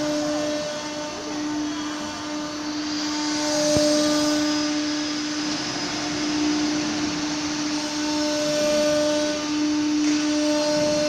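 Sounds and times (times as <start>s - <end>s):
router spindle whining: 0.0s - 11.0s
wood cutting hiss: 0.0s - 11.0s.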